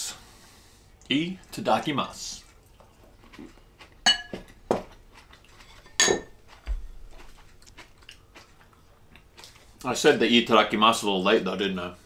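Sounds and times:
chopsticks and dishes clinking: 4.0 - 6.4.

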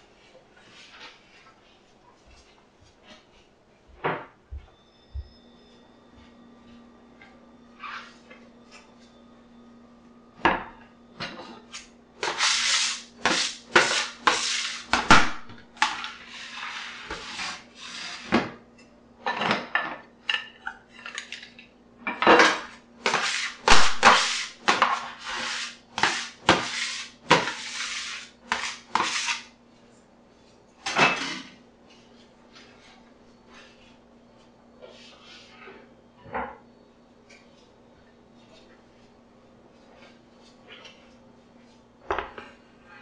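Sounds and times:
metal scraper on steel worktop: 12.2 - 14.9, 23.1 - 29.5.

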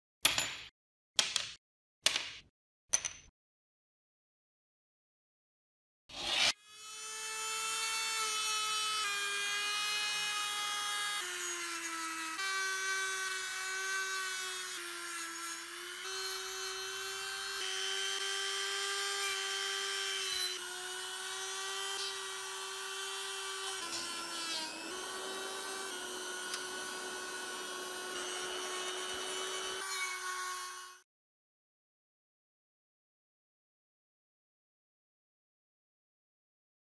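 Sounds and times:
rotary tool whining: 19.0 - 31.0.

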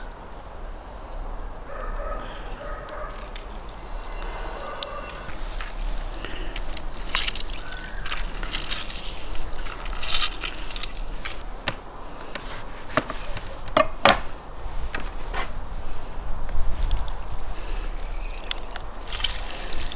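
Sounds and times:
lemon juice dripping into basin: 16.8 - 19.9.

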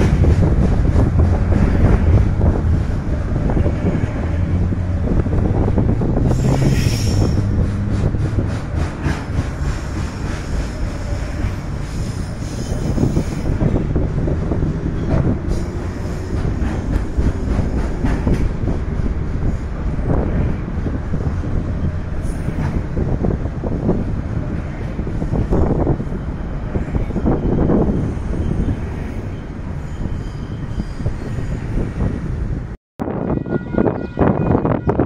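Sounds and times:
train wagons rumbling: 0.0 - 32.8
wheel squeal: 27.0 - 32.2.

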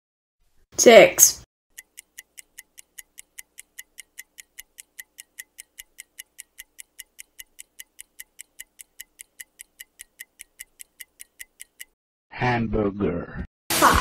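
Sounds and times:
fast stopwatch ticking: 1.7 - 12.0.

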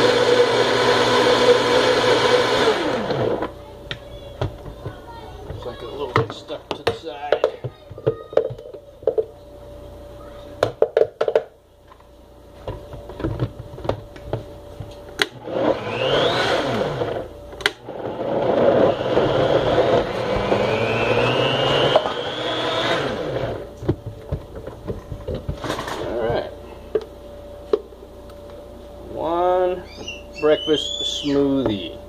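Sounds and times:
blender motor whining: 0.0 - 3.5, 15.2 - 23.7
blender clicks: 19.1 - 22.7.

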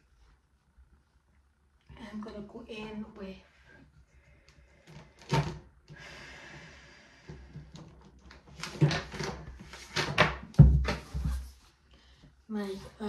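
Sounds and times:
items knocking on a surface: 9.9 - 11.5.

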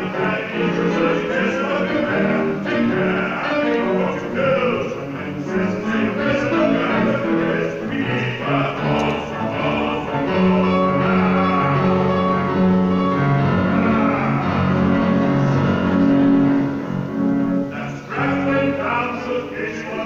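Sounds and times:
man singing: 0.0 - 16.0, 17.7 - 20.0
grand piano accompaniment: 0.0 - 20.0.

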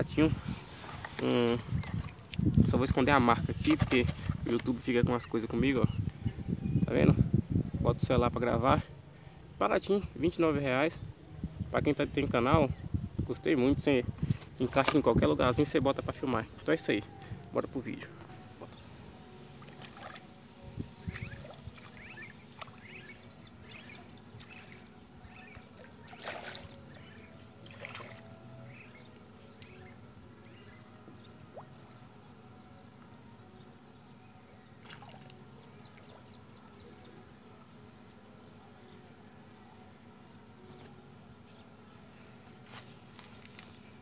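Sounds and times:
steady high-pitched tone: 15.2 - 44.0.

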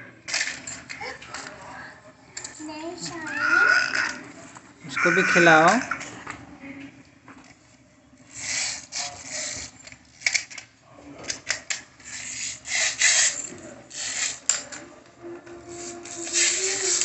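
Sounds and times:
plastic toys scraping on tiled floor: 8.3 - 10.6, 11.5 - 14.8, 15.5 - 17.0.

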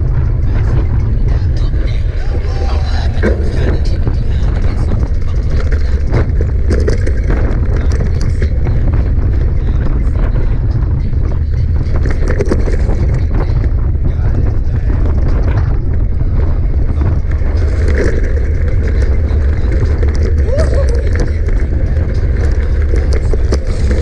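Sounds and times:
bike rattles and knocks: 0.0 - 24.0
wind rumble on microphone: 0.0 - 24.0.

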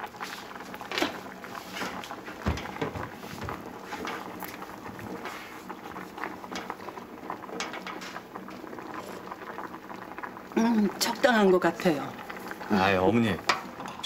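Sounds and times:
stew bubbling in pot: 0.0 - 14.0
footsteps on wooden floor: 2.3 - 3.8.

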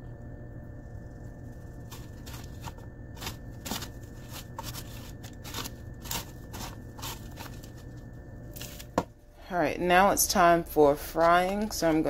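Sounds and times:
breadcrumbs crunching in plastic bowl: 1.9 - 8.0.

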